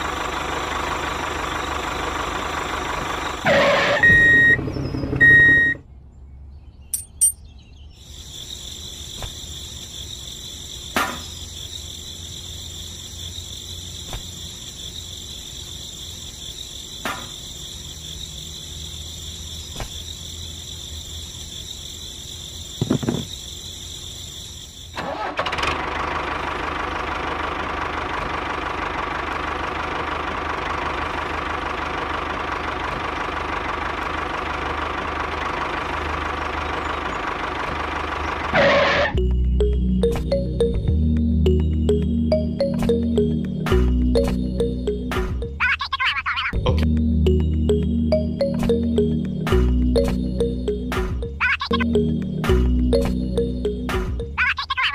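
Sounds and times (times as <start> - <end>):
short beeps: 5.2 - 5.8.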